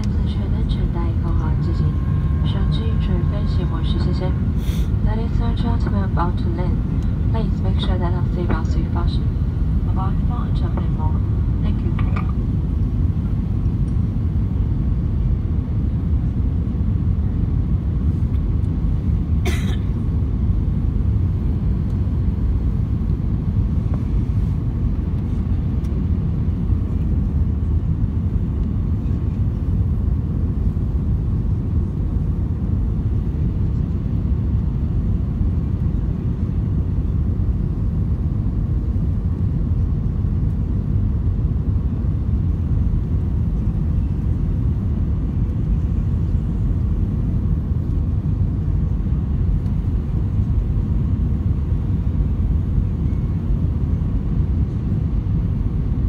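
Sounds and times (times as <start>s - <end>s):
jet engine cabin rumble: 0.0s - 56.0s
rushing air: 4.4s - 5.1s.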